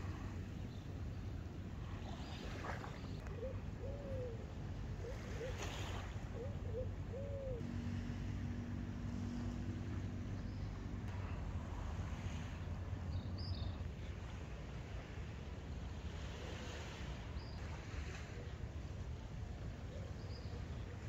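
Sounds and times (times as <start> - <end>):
wind and surf rumble: 0.0 - 21.0
steady hum: 6.3 - 15.0.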